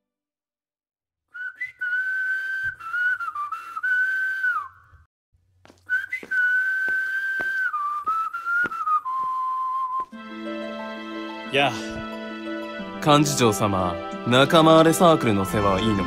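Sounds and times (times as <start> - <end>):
person whistling a slow tune: 1.3 - 5.0, 5.9 - 10.2.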